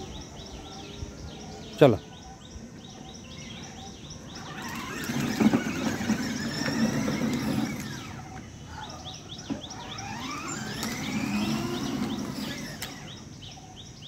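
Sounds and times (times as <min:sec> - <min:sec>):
hard wheels rumbling on asphalt: 0:02.8 - 0:14.0
toy car electric motor whirring: 0:04.4 - 0:13.3.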